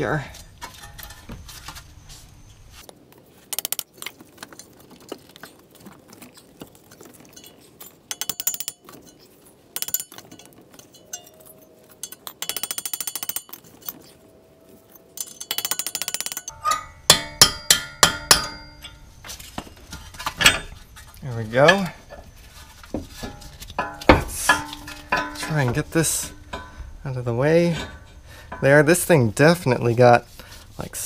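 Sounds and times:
rapid metallic rattling: 7.5s - 14.2s, 15.2s - 30.6s.

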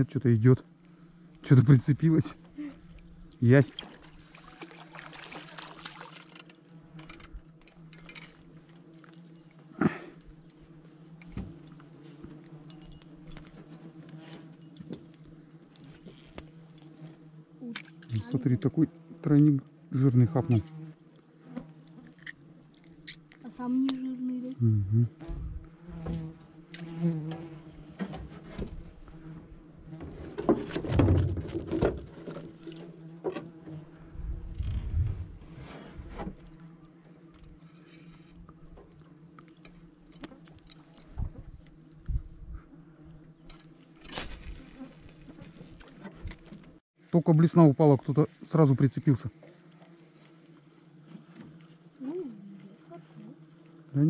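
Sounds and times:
flying insects buzzing: 0.0s - 46.8s, 47.9s - 54.0s
knocks and rustles: 30.0s - 33.8s.

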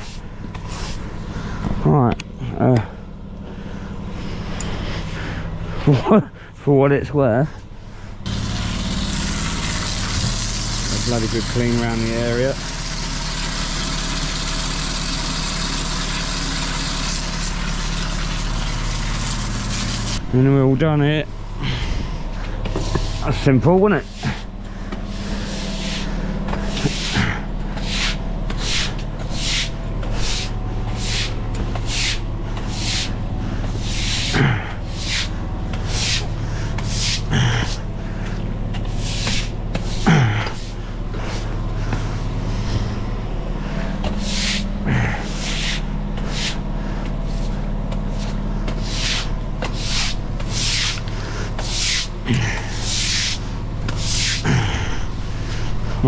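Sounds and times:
low hum: 7.4s - 56.0s
broom sweeping wet stone: 25.1s - 26.1s, 26.8s - 27.2s, 27.8s - 33.2s, 33.8s - 37.8s, 38.9s - 40.0s, 44.2s - 46.6s, 47.3s - 54.4s.

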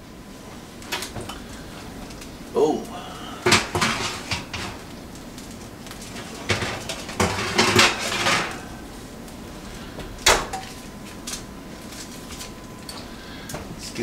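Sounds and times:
baking tray scraping and clattering: 3.4s - 4.8s, 5.9s - 8.8s.

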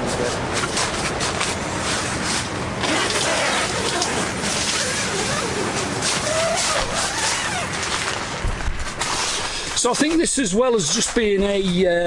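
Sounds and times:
nylon tent fabric rustling: 1.9s - 11.3s.

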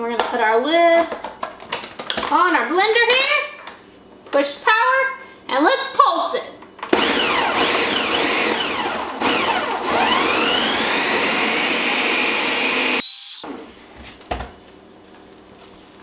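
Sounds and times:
blender motor pulsing: 6.9s - 13.6s.

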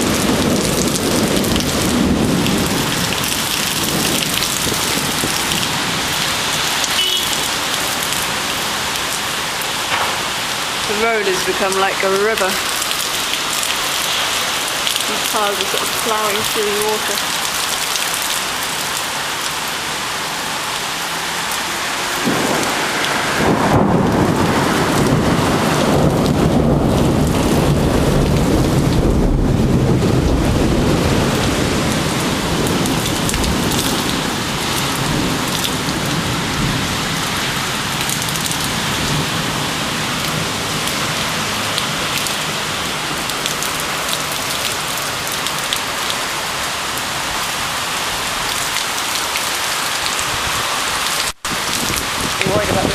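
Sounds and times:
thunder rumbling: 0.0s - 6.8s, 9.6s - 17.6s, 22.0s - 45.6s, 51.4s - 52.9s
heavy rain pouring: 0.0s - 52.9s.

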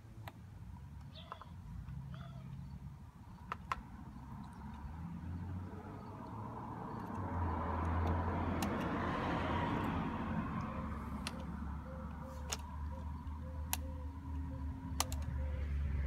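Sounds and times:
light sharp plastic clicks: 0.2s - 0.4s, 7.0s - 8.9s, 13.7s - 15.4s
car passing by: 4.8s - 11.8s.

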